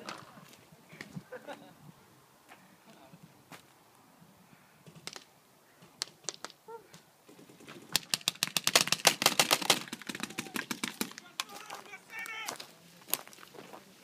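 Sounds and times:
paintball markers firing: 4.8s - 6.6s, 7.8s - 11.8s.

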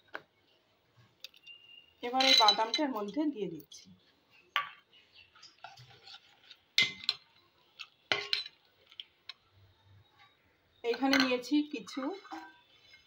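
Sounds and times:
spoon clinking against steel pot: 1.4s - 3.2s, 8.1s - 8.6s
spoon stirring thick mixture: 4.0s - 10.4s, 11.0s - 13.0s.

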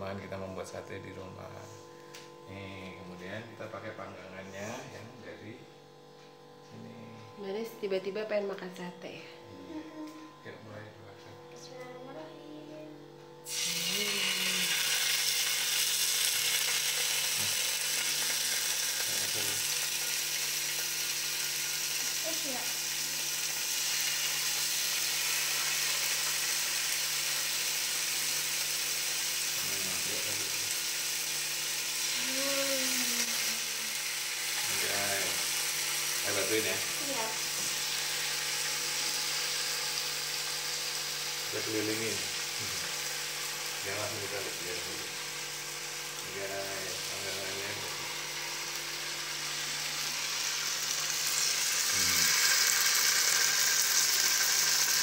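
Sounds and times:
gas burner hum: 0.0s - 55.0s
skewers sizzling on grill pan: 13.4s - 55.0s.

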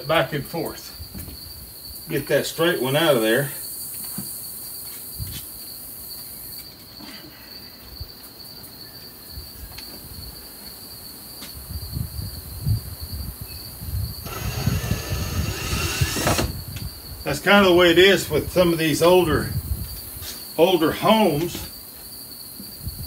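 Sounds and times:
insects chirring: 0.0s - 23.0s
cordless drill running: 14.2s - 16.6s.

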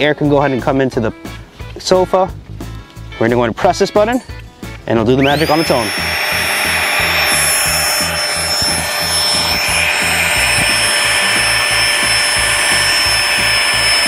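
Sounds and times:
electric air pump whining: 5.2s - 14.0s.

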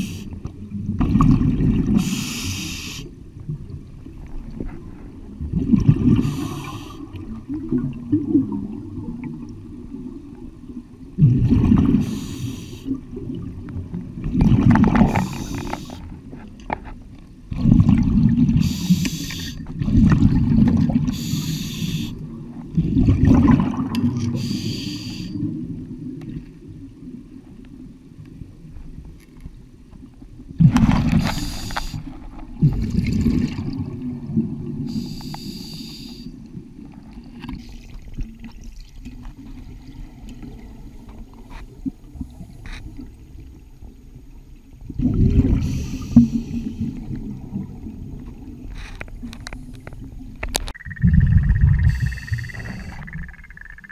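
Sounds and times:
regulator hissing inhalations: 0.0s - 0.4s, 2.0s - 3.1s, 6.2s - 7.1s, 12.0s - 13.0s, 15.1s - 16.0s, 18.6s - 19.6s, 21.1s - 22.2s, 24.4s - 25.4s, 31.2s - 32.1s, 34.9s - 36.4s, 45.6s - 47.0s, 51.8s - 53.1s
exhaled bubbles rumbling: 0.0s - 2.4s, 3.2s - 12.3s, 12.9s - 16.8s, 17.4s - 19.0s, 19.6s - 21.3s, 22.2s - 24.5s, 30.1s - 35.1s, 36.4s - 53.9s.

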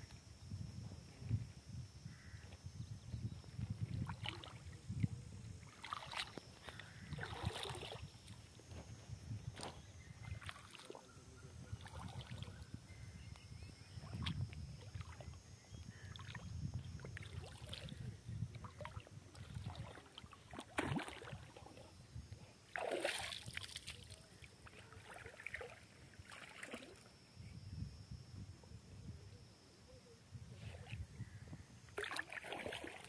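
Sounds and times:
water splashing: 5.7s - 6.4s, 7.2s - 8.0s, 18.7s - 21.8s, 22.7s - 27.0s, 32.0s - 33.0s.

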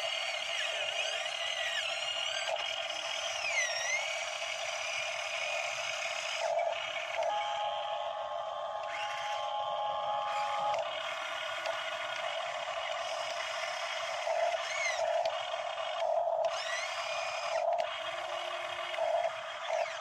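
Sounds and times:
model excavator motors whining: 0.0s - 20.0s.

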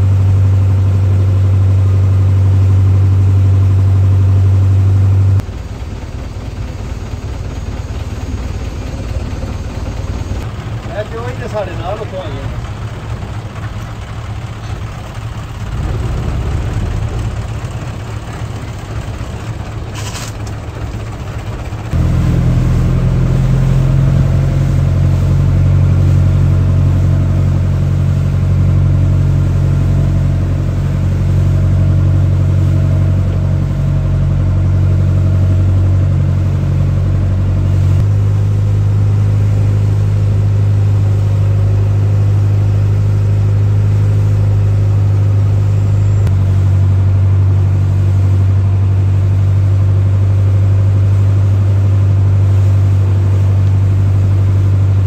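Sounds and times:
boat engine humming: 0.0s - 55.0s.

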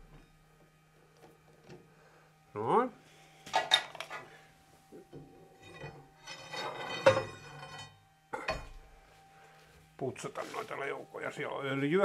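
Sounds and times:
faint steady hum: 0.0s - 12.0s
metal tools clinking and clanking: 5.1s - 8.8s.

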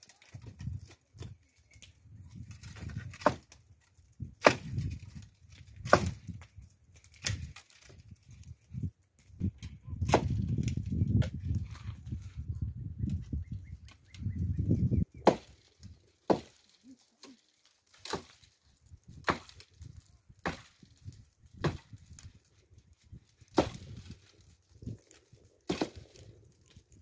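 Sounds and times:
axe chopping firewood: 2.6s - 8.5s, 10.0s - 11.4s, 15.1s - 18.5s, 19.1s - 22.3s, 23.3s - 26.8s.

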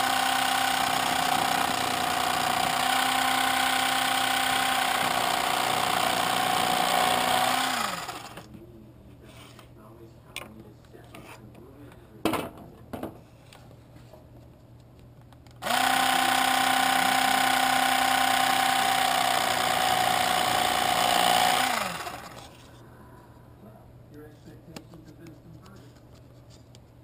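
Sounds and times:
small electric motor running: 0.0s - 8.5s, 15.6s - 22.6s.

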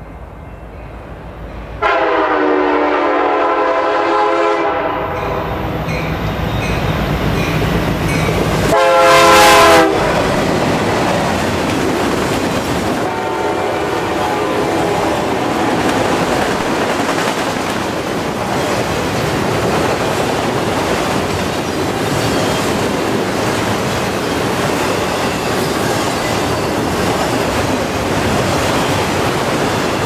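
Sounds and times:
locomotive horn blasts: 1.8s - 5.5s, 8.7s - 10.2s, 13.0s - 15.7s
train wheel clatter: 10.1s - 13.1s, 15.0s - 30.0s.

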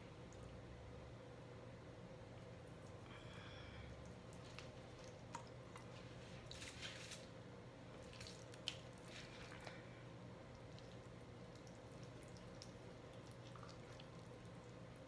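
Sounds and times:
low steady hum: 0.0s - 15.0s
raw chicken squishing: 4.0s - 15.0s.

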